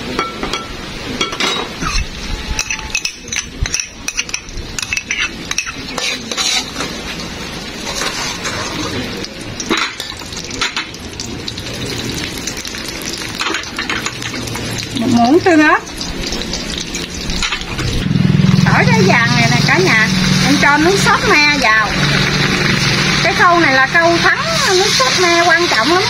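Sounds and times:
garlic frying in oil: 0:00.0 - 0:26.0
metal spoon scraping a wok: 0:01.5 - 0:07.2, 0:07.8 - 0:09.0, 0:24.4 - 0:25.8.

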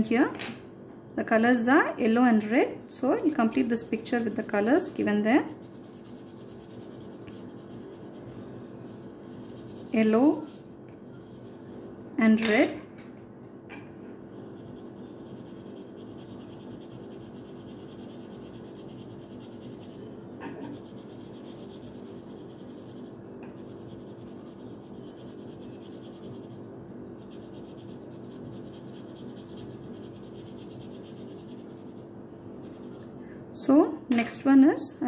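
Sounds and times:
pencil scribbling on paper: 0:03.4 - 0:11.8, 0:14.4 - 0:33.2.

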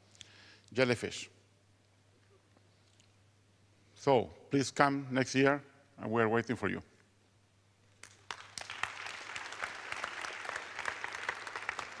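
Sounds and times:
audience applause: 0:08.0 - 0:12.0.

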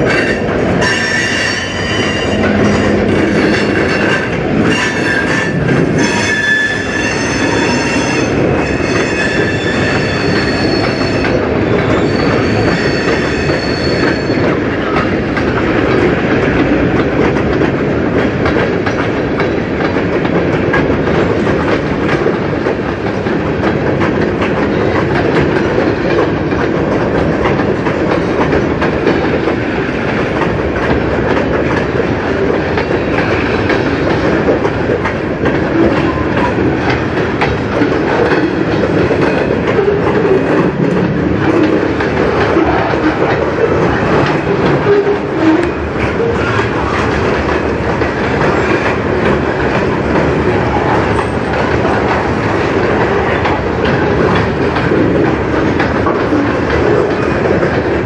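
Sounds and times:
train wheels rumbling on rails: 0:00.0 - 0:58.0
train wheels squealing: 0:00.1 - 0:14.5.

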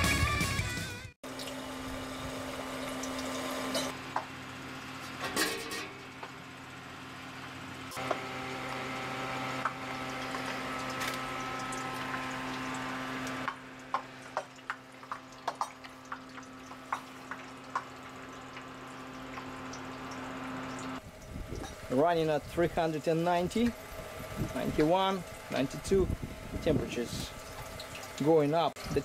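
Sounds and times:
liquid dripping: 0:09.6 - 0:21.9, 0:22.7 - 0:29.0.

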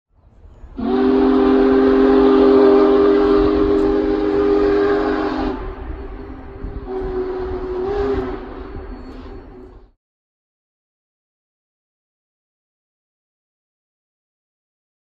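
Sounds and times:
steam locomotive whistle: 0:00.5 - 0:10.0.

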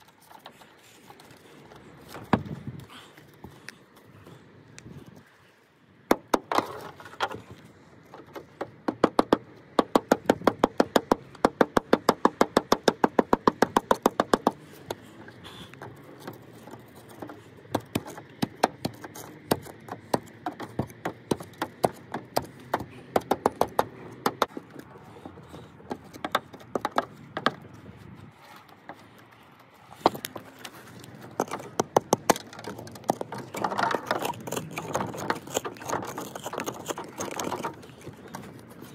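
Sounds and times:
scattered knocks: 0:17.7 - 0:24.6.

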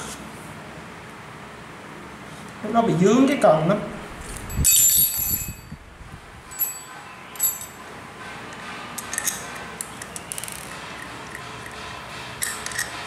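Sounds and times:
metal clinks ringing: 0:04.5 - 0:05.7, 0:06.5 - 0:08.0
metal parts thump: 0:06.5 - 0:07.8
small clicks of screws: 0:12.4 - 0:12.9.

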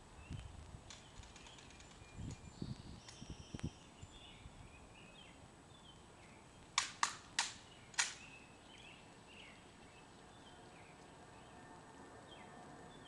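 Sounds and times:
birds chirping: 0:00.2 - 0:13.0
rifle metallic clicks: 0:06.8 - 0:08.3.

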